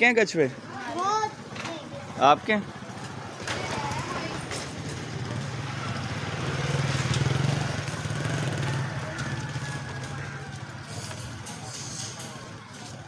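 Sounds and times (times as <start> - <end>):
passing vehicle engine hum: 2.0 - 12.9.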